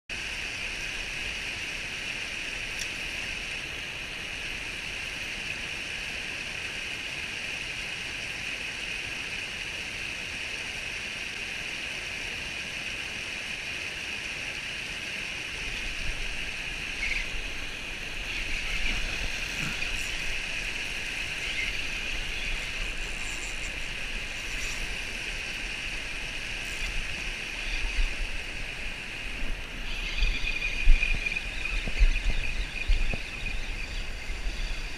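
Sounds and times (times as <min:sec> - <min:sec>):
river current rushing: 0:00.2 - 0:34.9
low rumble on the microphone: 0:15.6 - 0:34.9.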